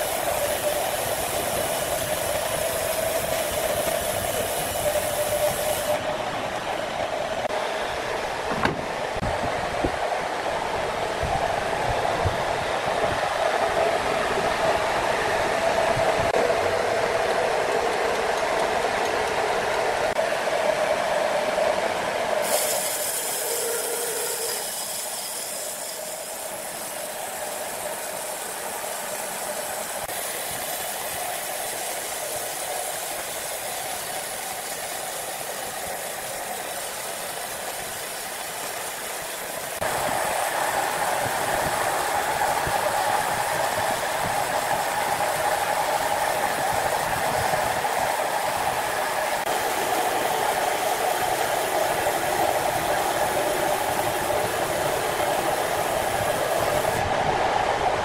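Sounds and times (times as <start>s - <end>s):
band sawmill running: 0.0s - 57.8s.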